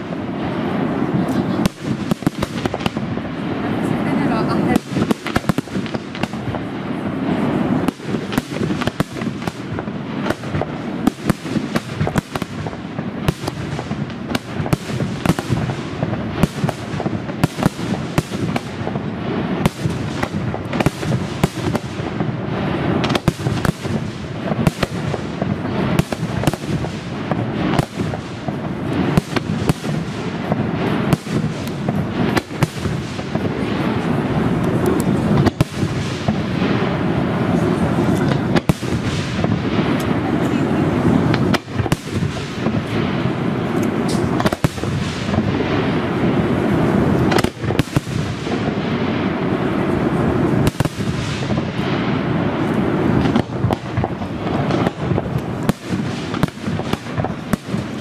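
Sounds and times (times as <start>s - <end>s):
firework shells bursting: 41.2s - 49.4s.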